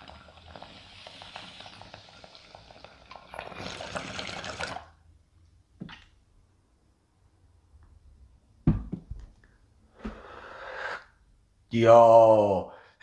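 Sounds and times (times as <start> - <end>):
water pipe bubbling: 0.0 - 5.1.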